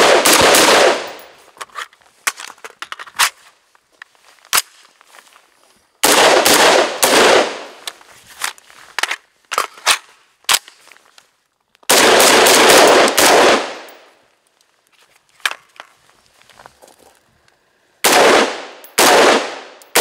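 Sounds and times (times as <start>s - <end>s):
rifle shots with echo: 0.0s - 1.3s, 6.0s - 7.8s, 11.9s - 14.1s, 18.0s - 20.0s.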